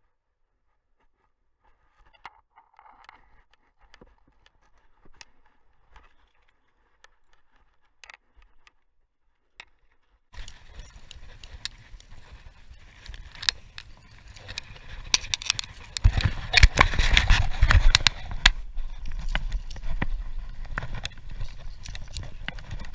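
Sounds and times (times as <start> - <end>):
clicks: 10.4 - 22.9
footsteps: 10.4 - 22.9
gear rustling and scraping: 10.4 - 22.9.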